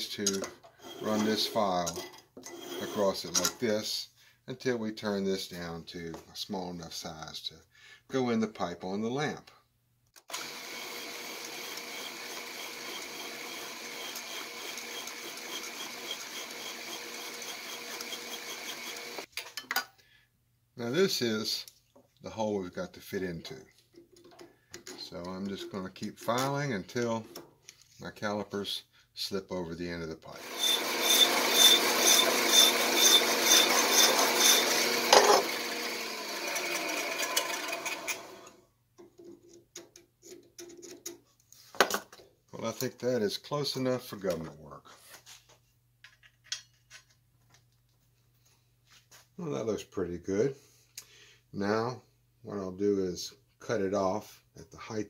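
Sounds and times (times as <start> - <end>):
file rasping on metal pipe: 0.8 - 1.6, 2.4 - 3.1, 14.0 - 19.3, 30.6 - 35.5
drill press motor running: 10.3 - 19.3, 30.4 - 38.6.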